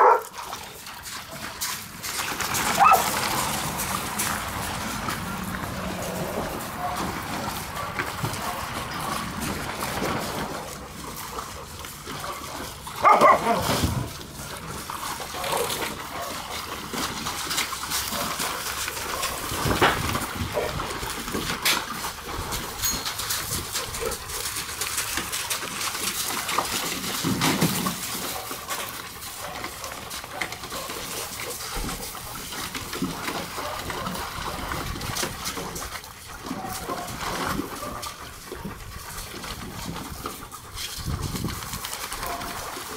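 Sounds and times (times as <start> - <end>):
dogs barking: 0.0 - 0.6, 2.6 - 3.6, 5.1 - 9.8, 11.2 - 14.1, 15.1 - 16.8, 18.0 - 20.9, 28.2 - 32.0, 33.4 - 34.6, 36.3 - 38.4, 42.1 - 42.7
dogs splashing in water: 0.0 - 42.9.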